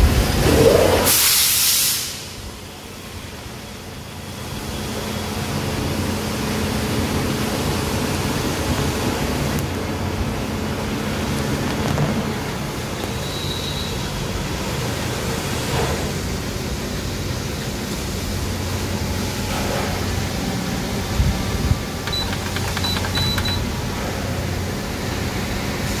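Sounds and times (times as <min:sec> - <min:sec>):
copier fan and motor hum: 0:02.4 - 0:26.0
high key beeps: 0:22.0 - 0:23.7.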